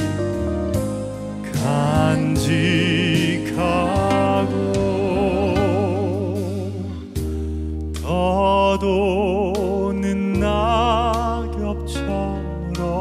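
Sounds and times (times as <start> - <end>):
man singing a slow ballad: 0.0 - 13.0
soft accompaniment with low bass: 0.0 - 13.0.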